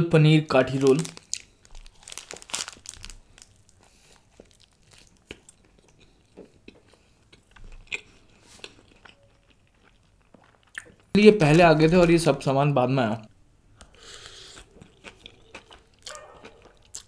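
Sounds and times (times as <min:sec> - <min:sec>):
person chewing food: 0:01.1 - 0:11.1, 0:13.8 - 0:17.0.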